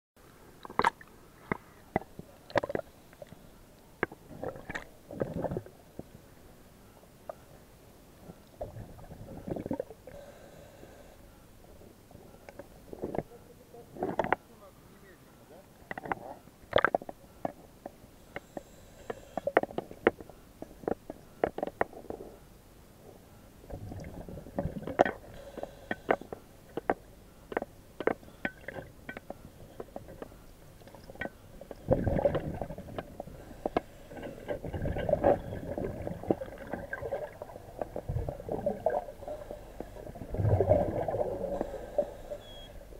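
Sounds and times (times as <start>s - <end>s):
water gurgling and sloshing: 0.4s - 6.4s, 7.3s - 10.6s, 15.9s - 17.7s, 23.1s - 42.9s
gas bubbling underwater: 31.8s - 33.3s, 34.6s - 42.5s.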